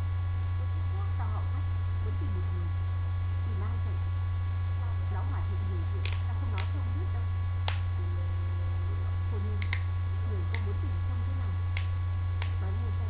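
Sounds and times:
low electrical hum: 0.0 - 13.0
sharp isolated clicks: 6.0 - 6.7, 9.6 - 9.9, 11.8 - 12.6.

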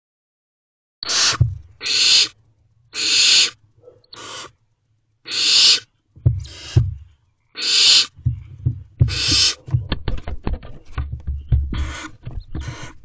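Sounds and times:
owlets hissing: 1.0 - 2.4, 3.0 - 4.6, 5.3 - 8.3, 9.0 - 9.7, 11.8 - 13.0
dull thump: 1.4 - 1.7, 6.2 - 7.1, 8.2 - 13.0.

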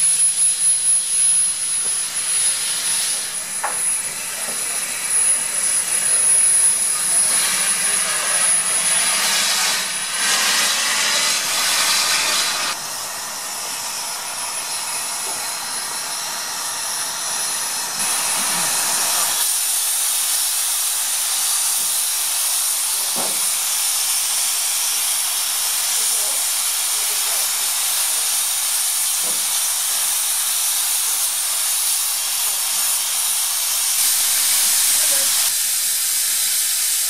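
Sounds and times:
steam locomotive hissing steam: 0.0 - 37.0.

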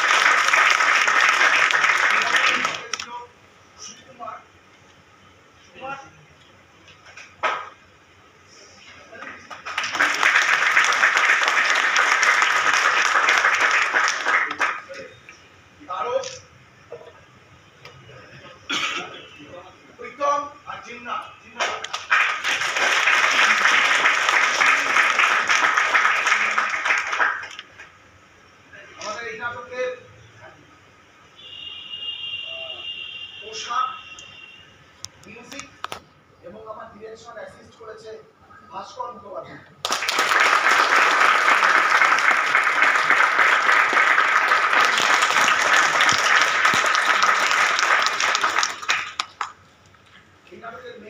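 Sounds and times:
crowd applauding: 0.0 - 3.0, 9.3 - 15.0, 21.6 - 27.8, 39.8 - 49.6.

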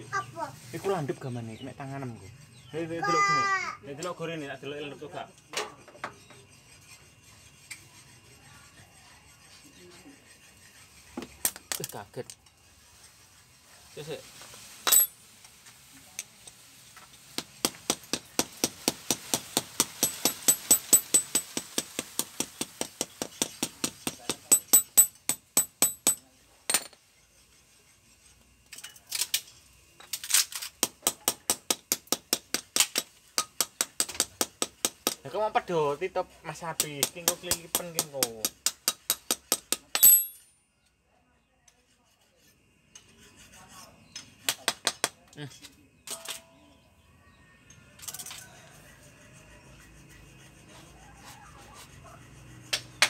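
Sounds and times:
faint rubbing and scraping: 0.1 - 24.6, 26.0 - 30.7, 41.7 - 44.5, 48.1 - 53.0.

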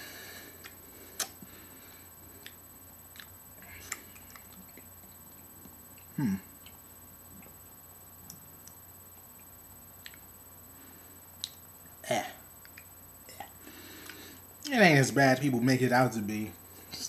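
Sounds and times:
mouth clicks and smacks: 0.6 - 1.5, 8.2 - 10.3, 11.4 - 11.6, 12.6 - 14.2.

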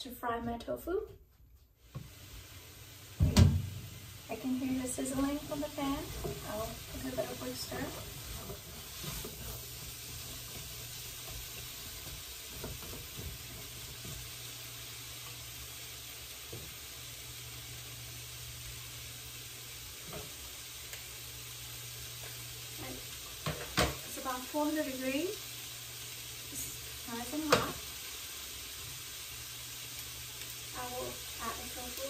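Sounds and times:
beans sizzling in oil: 1.8 - 32.0
utensil knocking on pan: 23.4 - 24.0.

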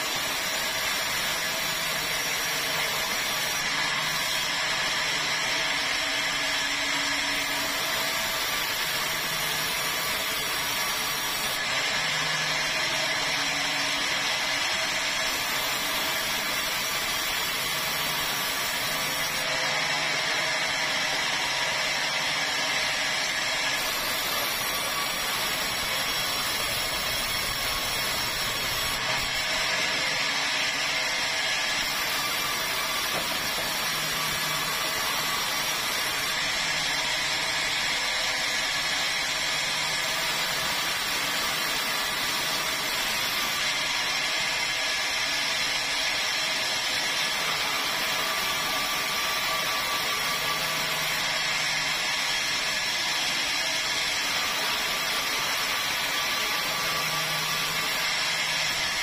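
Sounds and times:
saw ripping timber: 20.6 - 51.5.

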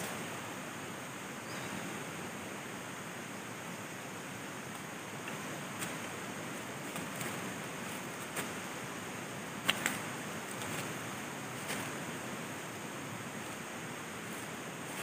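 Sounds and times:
river flowing: 0.0 - 15.0.

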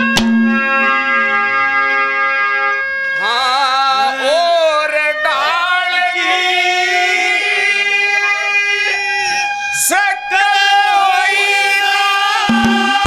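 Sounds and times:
held instrument notes: 0.0 - 9.9
man singing: 3.2 - 13.0.

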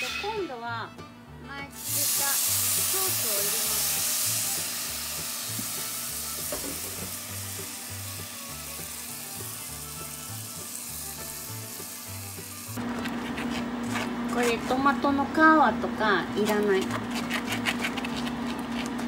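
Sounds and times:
quiet background music with bass: 0.0 - 12.8
sauce sizzling in pot: 1.7 - 12.9.

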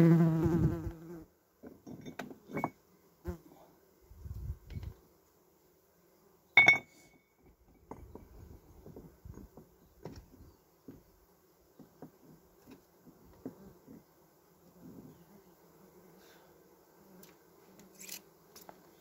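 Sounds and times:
honeybees buzzing: 0.0 - 1.5, 7.9 - 19.0
stone striking stone: 6.6 - 6.9.

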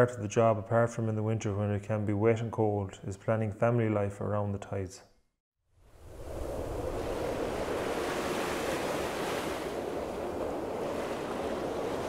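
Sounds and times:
wind: 5.6 - 12.0
waves on choppy sea: 5.8 - 12.0.

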